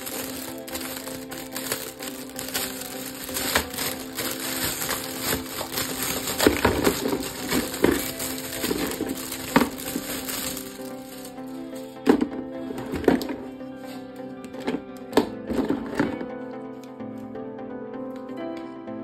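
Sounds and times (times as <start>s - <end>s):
plastic packaging crinkling: 0.0s - 12.2s
background music: 0.0s - 19.0s.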